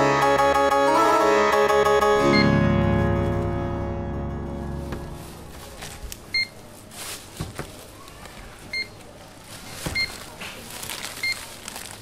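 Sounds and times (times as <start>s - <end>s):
knocks and rustles of goods: 4.8s - 12.0s.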